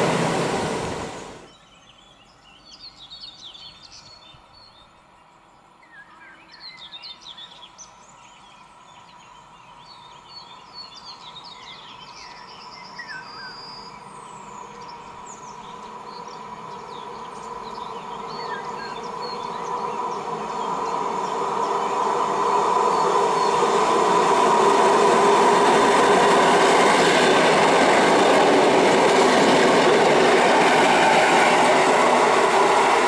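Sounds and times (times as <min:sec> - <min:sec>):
electric train humming: 0:00.0 - 0:01.5, 0:14.3 - 0:33.0
songbirds chirping: 0:01.4 - 0:33.0.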